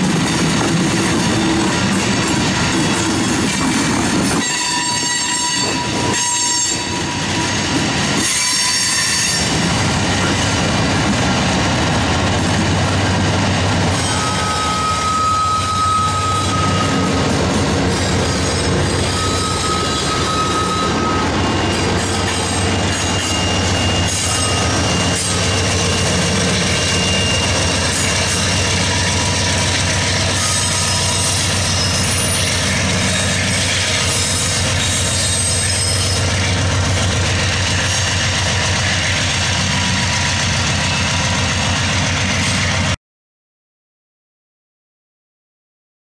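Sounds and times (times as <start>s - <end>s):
diesel locomotive passing: 0.0s - 43.0s
rolling freight cars rumble: 0.0s - 43.0s
train wheels squealing: 1.2s - 10.3s, 13.9s - 41.3s.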